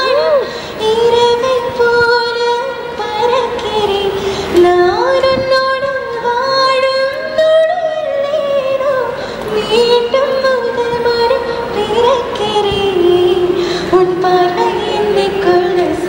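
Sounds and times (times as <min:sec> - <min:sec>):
woman singing slow melody: 0:00.0 - 0:16.0.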